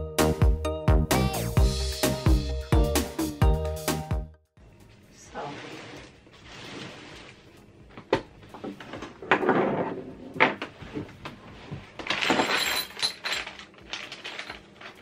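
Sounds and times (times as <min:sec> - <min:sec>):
rustling: 0:05.3 - 0:07.7, 0:10.7 - 0:15.0.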